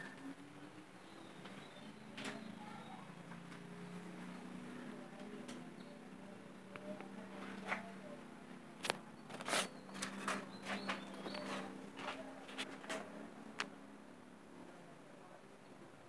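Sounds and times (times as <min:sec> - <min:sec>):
handling clicks and rustles: 0:08.8 - 0:13.7.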